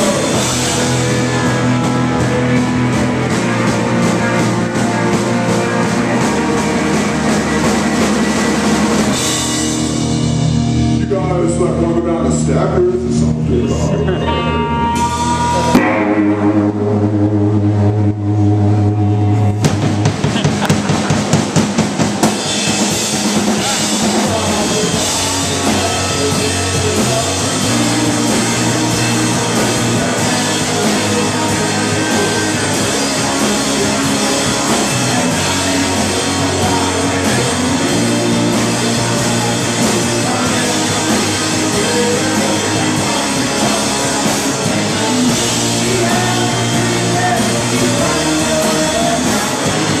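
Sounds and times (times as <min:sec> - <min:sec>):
live rock band playing: 0:00.0 - 0:50.0
drum hits: 0:19.6 - 0:50.0.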